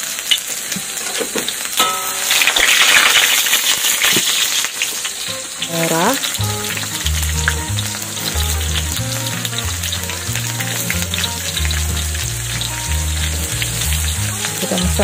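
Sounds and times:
food sizzling in hot oil: 0.0s - 15.0s
background music with bass line: 5.2s - 15.0s.

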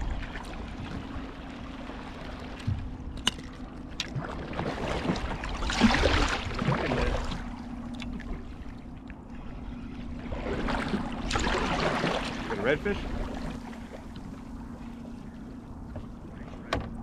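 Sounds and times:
fish splashing water: 3.3s - 8.3s, 10.3s - 12.5s.

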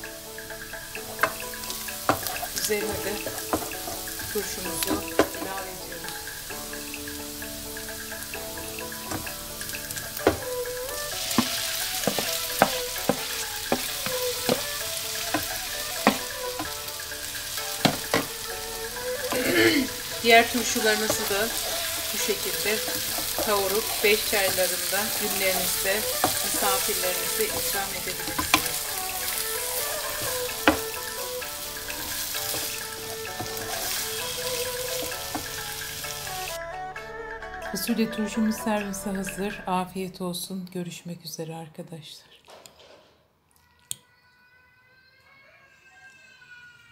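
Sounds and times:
vegetables sizzling in a frying pan: 0.0s - 36.6s
background music: 0.0s - 41.3s
wooden spoon knocking against pan: 1.0s - 5.7s, 8.3s - 36.5s.

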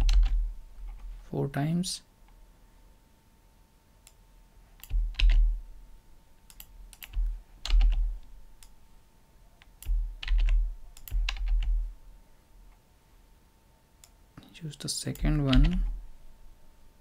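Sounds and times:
keyboard typing clicks: 0.0s - 1.1s, 4.8s - 5.5s, 6.5s - 8.7s, 9.6s - 11.8s, 15.1s - 16.0s.

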